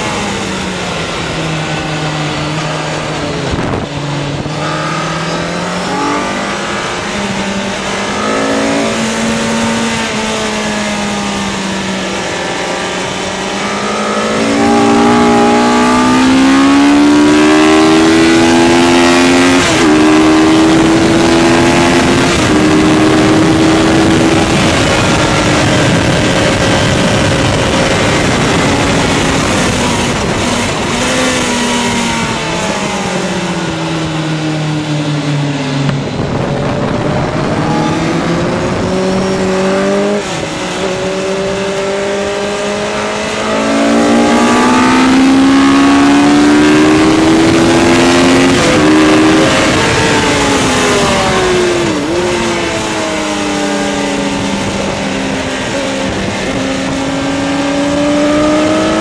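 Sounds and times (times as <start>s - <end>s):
motorcycle engine revving: 0.0s - 59.0s
wind rushing: 12.5s - 58.9s.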